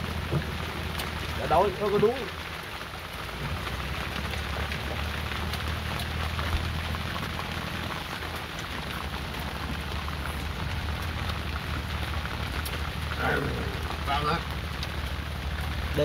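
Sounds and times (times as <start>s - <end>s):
heavy rain on boat: 0.0s - 16.0s.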